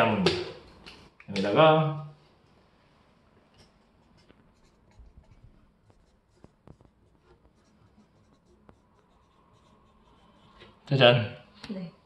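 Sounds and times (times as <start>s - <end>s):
marker scratching on card: 4.0s - 10.6s.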